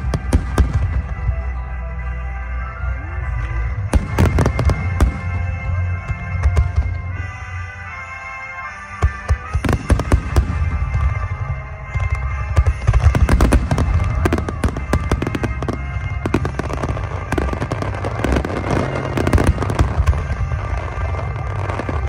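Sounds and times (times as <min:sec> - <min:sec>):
fireworks bursting: 0:08.8 - 0:22.0.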